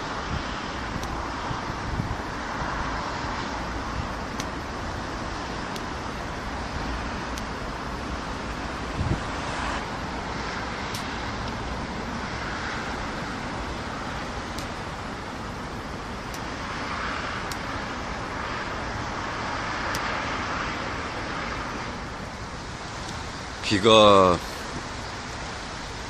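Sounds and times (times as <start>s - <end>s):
road traffic on bridge overhead: 0.0s - 26.0s
faint sharp ticks: 1.0s - 1.2s, 4.3s - 4.6s, 5.7s - 6.0s, 7.3s - 7.6s, 10.9s - 11.6s, 14.5s - 14.8s, 16.3s - 16.5s, 17.4s - 17.7s, 19.9s - 20.1s, 23.0s - 23.2s.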